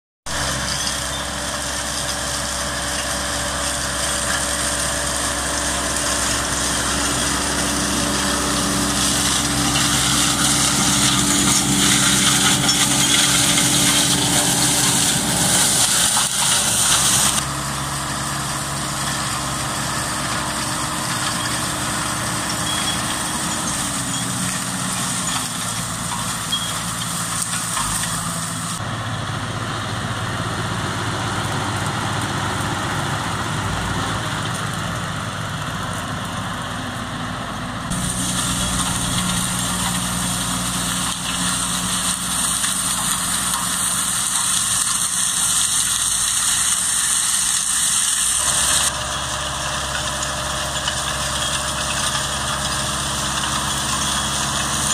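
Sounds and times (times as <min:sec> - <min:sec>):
tractor diesel engine: 0:00.2 - 0:54.9
flail mulcher hissing rush: 0:00.4 - 0:28.8, 0:37.9 - 0:49.5.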